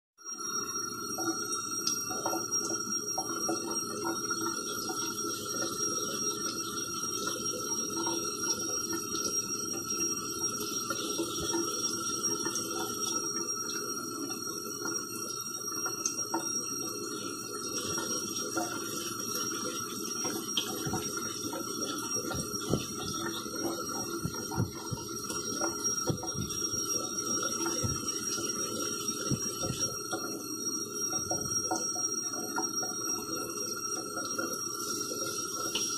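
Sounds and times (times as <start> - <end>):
tap running into metal sink: 20.2 - 30.4.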